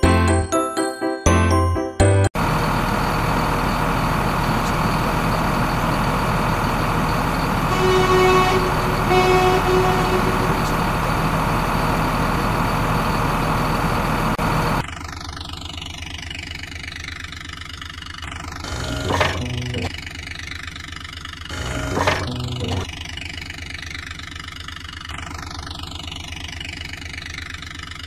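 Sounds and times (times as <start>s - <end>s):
truck engine running: 2.4s - 28.0s
truck horn honks: 7.6s - 11.3s, 18.7s - 19.9s, 21.5s - 22.9s.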